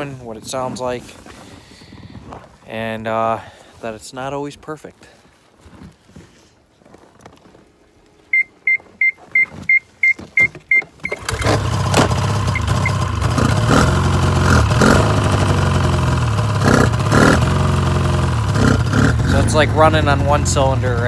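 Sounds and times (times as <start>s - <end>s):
short electronic beeps: 8.3s - 11.3s
snowmobile engine running unevenly: 11.2s - 21.0s.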